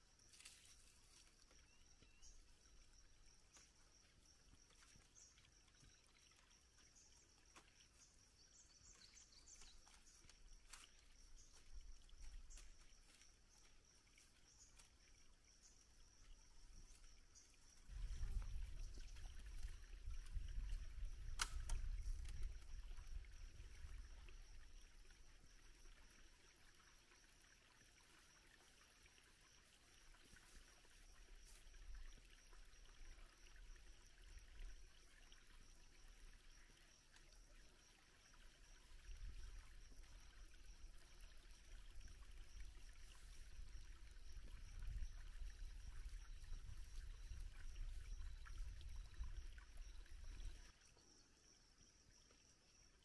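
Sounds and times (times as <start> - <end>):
wind rumble on microphone: 17.9 - 24.4, 41.8 - 50.7.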